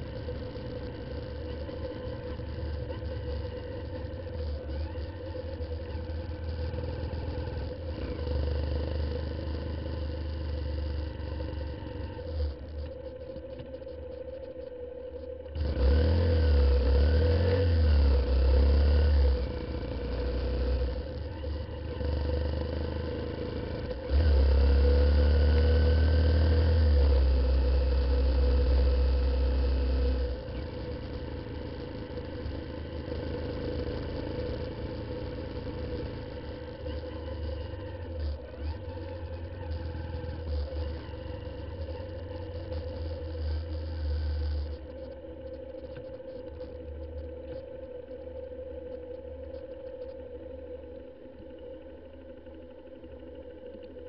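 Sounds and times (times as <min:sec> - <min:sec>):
motorcycle engine revving: 0:00.0 - 0:13.8, 0:15.4 - 0:45.1.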